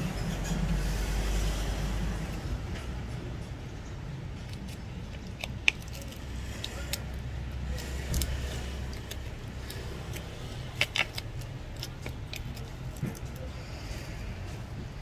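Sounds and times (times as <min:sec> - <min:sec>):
small parts clicking and tapping: 0:04.4 - 0:13.5.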